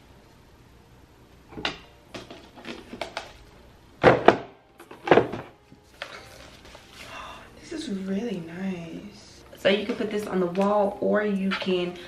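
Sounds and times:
cardboard and plastic rustling: 0:04.8 - 0:07.3.

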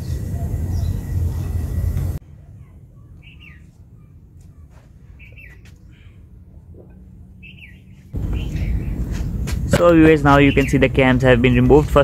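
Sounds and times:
low steady hum: 0:00.0 - 0:12.0
small bird chirping: 0:05.2 - 0:05.7, 0:07.4 - 0:09.0.

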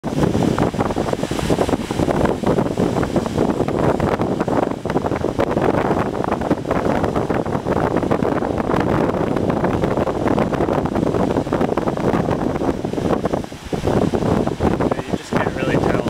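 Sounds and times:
waves washing against rocks: 0:00.0 - 0:16.0
wind buffeting microphone: 0:00.0 - 0:16.0.

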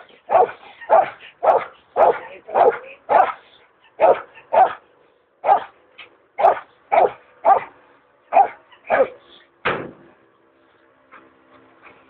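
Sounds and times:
dog barking sharply: 0:00.3 - 0:03.4, 0:04.0 - 0:04.8, 0:05.4 - 0:05.7, 0:06.4 - 0:07.7, 0:08.3 - 0:09.2.

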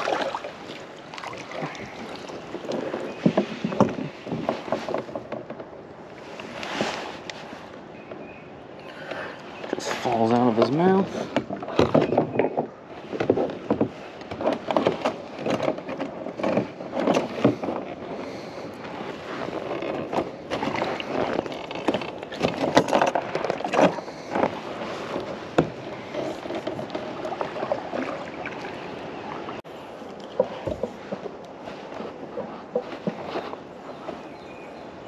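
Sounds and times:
outdoor ambient noise: 0:00.0 - 0:35.0
knocks and taps on kayak: 0:02.6 - 0:05.7, 0:19.9 - 0:28.6.

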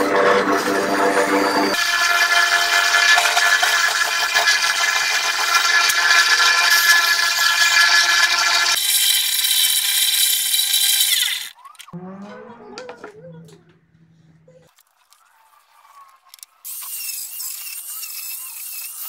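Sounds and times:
bandsaw cutting wood: 0:00.0 - 0:11.6.

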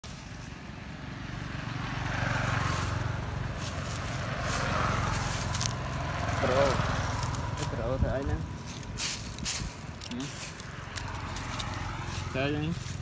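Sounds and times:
road traffic noise: 0:00.0 - 0:13.0
vehicle engine humming: 0:00.0 - 0:13.0.

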